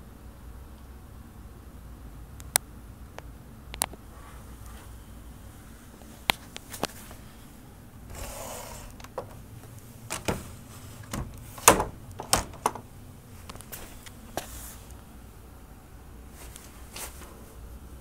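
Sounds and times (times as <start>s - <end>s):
handling clicks and knocks: 9.0s - 14.2s.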